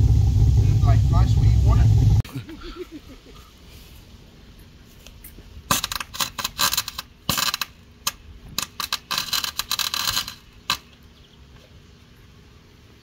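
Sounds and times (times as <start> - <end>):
welder arc crackling: 5.7 - 10.9.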